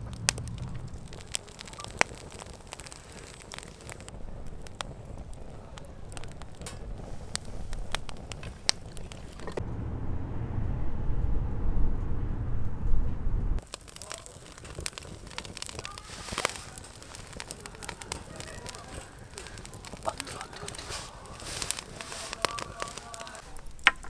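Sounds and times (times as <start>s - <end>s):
low rumble: 0.0s - 13.6s
sharp crackles and pops: 0.0s - 24.0s.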